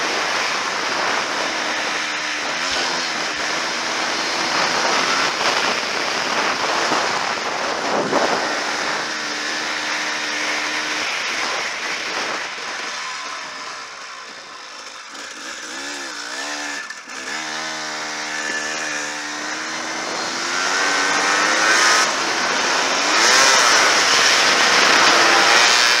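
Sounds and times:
dirt bike engine revving: 0:00.0 - 0:26.0
wind noise: 0:00.0 - 0:26.0.

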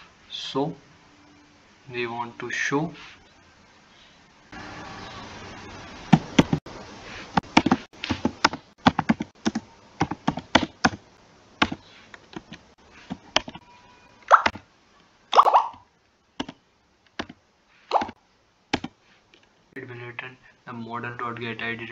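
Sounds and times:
steady hiss: 0:00.0 - 0:13.5.

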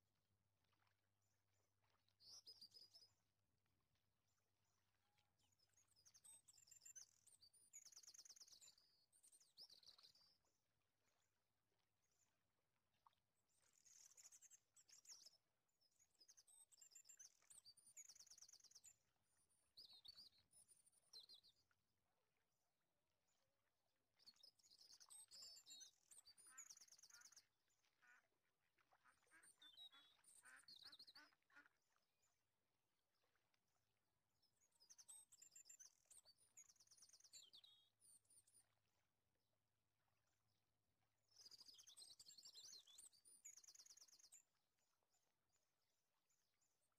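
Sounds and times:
faint bird chirping: 0:05.1 - 0:10.5, 0:13.0 - 0:21.8, 0:24.2 - 0:32.4, 0:34.4 - 0:38.8, 0:41.2 - 0:45.2.

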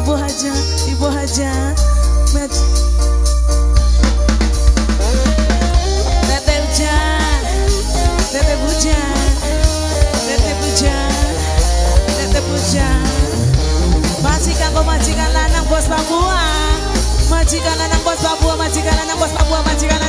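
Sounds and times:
drum kit: 0:00.0 - 0:20.0
electric guitars with bent notes: 0:00.0 - 0:20.0
heavy bass line: 0:00.0 - 0:20.0.

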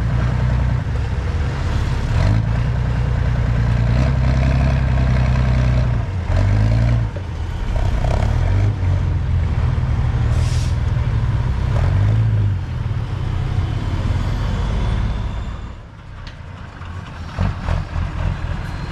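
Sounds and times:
truck engine revving and labouring: 0:00.0 - 0:18.9
short hiss: 0:10.3 - 0:10.8.

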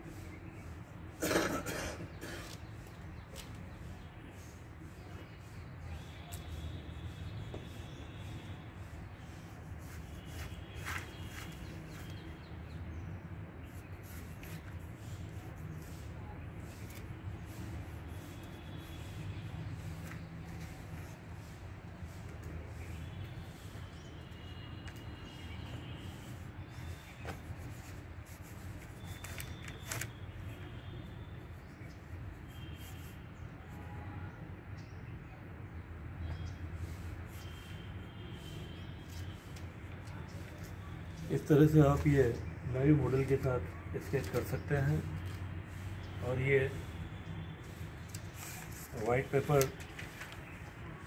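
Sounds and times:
stick scratching on paper: 0:02.3 - 0:12.7, 0:13.4 - 0:30.4, 0:31.4 - 0:33.4, 0:36.6 - 0:42.2, 0:43.0 - 0:50.7
faint bird chirps: 0:36.2 - 0:41.6.

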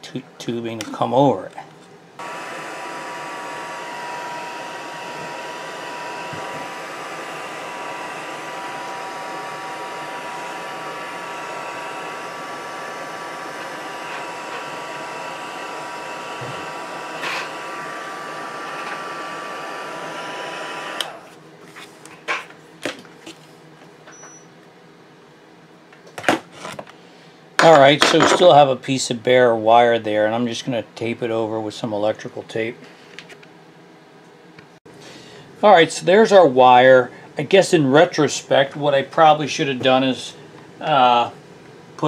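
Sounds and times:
heat gun whining: 0:02.2 - 0:21.3.

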